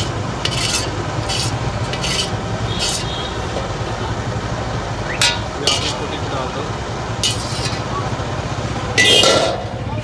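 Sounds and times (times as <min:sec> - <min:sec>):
metal ladle scraping wok: 0:00.0 - 0:03.7, 0:05.2 - 0:06.3, 0:07.1 - 0:07.9, 0:09.0 - 0:09.8.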